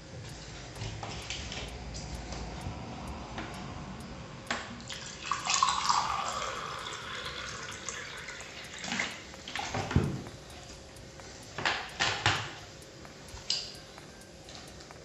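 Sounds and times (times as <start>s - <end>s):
liquid poured into a glass: 4.9s - 8.2s.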